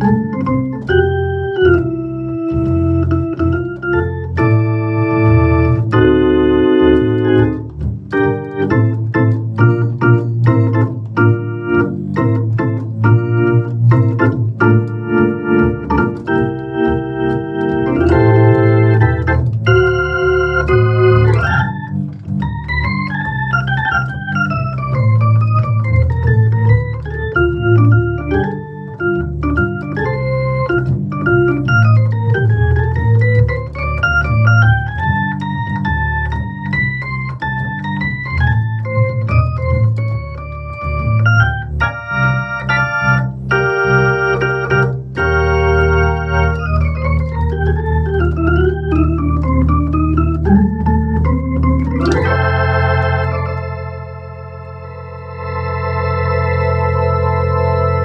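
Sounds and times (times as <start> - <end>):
electric organ playing: 0.0 - 58.0.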